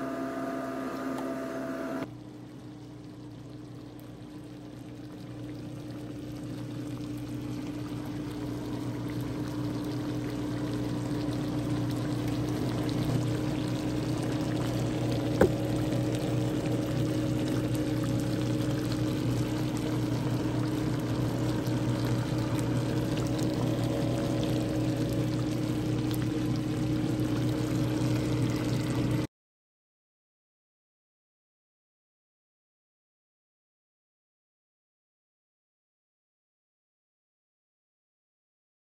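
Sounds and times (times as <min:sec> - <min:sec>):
sauce simmering and bubbling: 0:00.0 - 0:29.3
steady low hum: 0:00.0 - 0:29.3.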